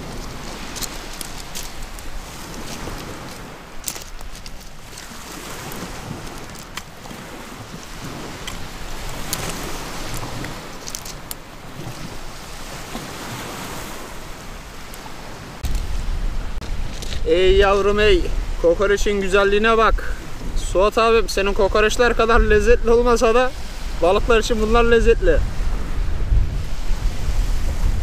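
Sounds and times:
small waves washing over pebbles: 0.0 - 18.6
wind blowing on microphone: 0.0 - 28.0.

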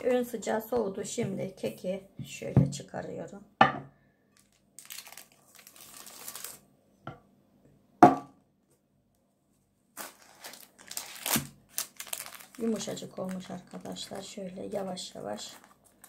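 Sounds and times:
knock on glass dish: 3.6 - 3.9, 8.0 - 8.3
baking paper crinkling: 4.4 - 6.6, 10.0 - 16.0.

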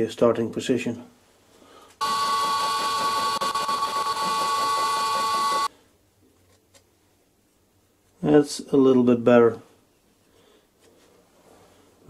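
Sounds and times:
face mill whining: 2.0 - 5.7.

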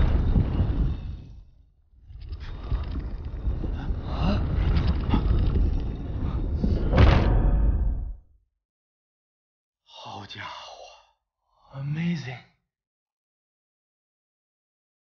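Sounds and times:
stone block grinding: 2.2 - 6.5.

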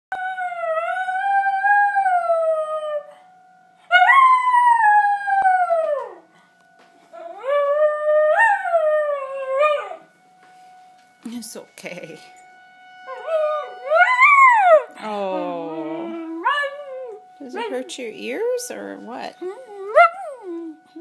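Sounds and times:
dog howling: 3.9 - 6.3, 7.1 - 10.1, 13.0 - 17.9, 19.4 - 21.0
emergency warning siren: 12.3 - 21.0.

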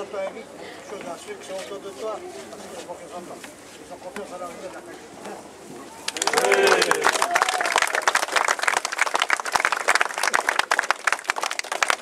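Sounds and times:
voices calling out: 5.8 - 7.8
crowd applauding: 6.0 - 12.0.

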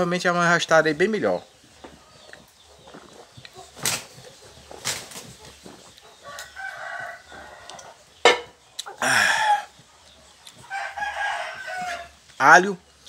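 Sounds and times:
rooster crowing: 6.2 - 8.0, 9.0 - 9.8, 10.7 - 12.2
man drinking: 8.8 - 9.7
loud breathy burst: 9.0 - 9.7.

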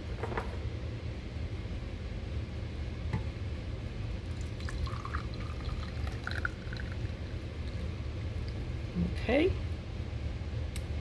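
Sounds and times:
water pouring into metal reservoir: 4.3 - 7.3.

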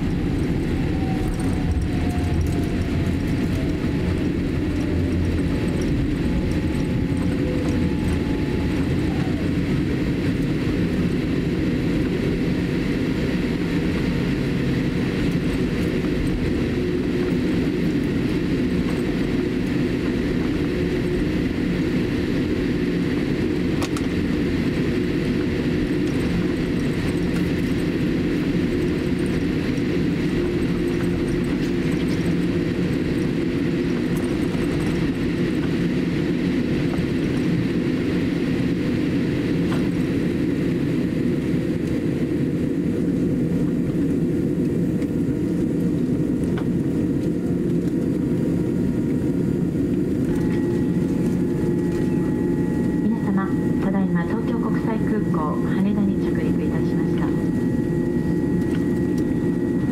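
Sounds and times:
low rumble inside airliner cabin: 0.0 - 59.9.

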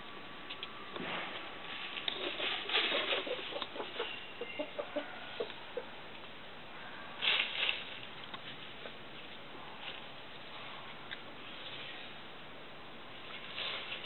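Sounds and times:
rustling: 0.5 - 4.8, 7.2 - 12.2, 13.2 - 14.0
chickens clucking: 2.0 - 6.0.

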